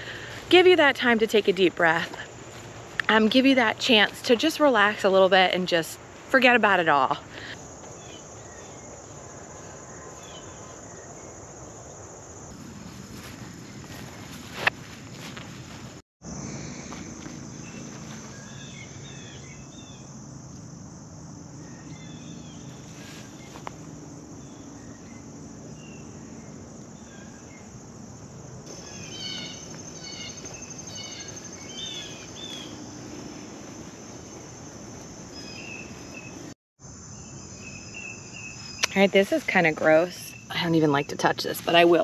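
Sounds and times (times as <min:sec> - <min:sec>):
crickets trilling in chorus: 0:00.0 - 0:42.0
fast pulsing insect trill: 0:00.2 - 0:14.1, 0:16.2 - 0:42.0
short insect chirps: 0:16.2 - 0:39.0.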